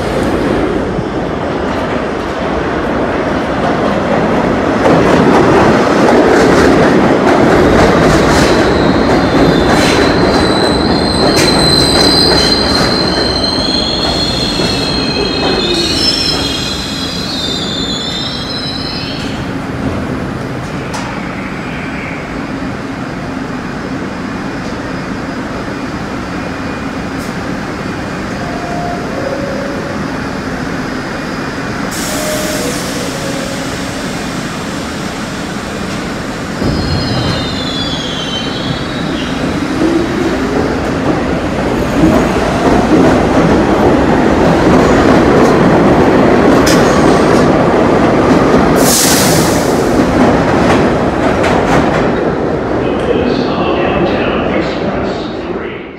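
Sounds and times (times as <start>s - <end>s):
subway train motors whining: 0.0s - 55.9s
air brake hiss: 31.9s - 33.2s.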